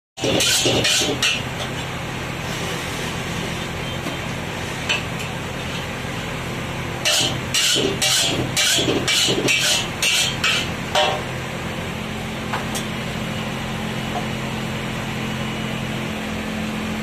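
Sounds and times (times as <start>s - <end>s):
ladle clinking and scraping wok: 0.2s - 1.9s, 7.0s - 11.3s.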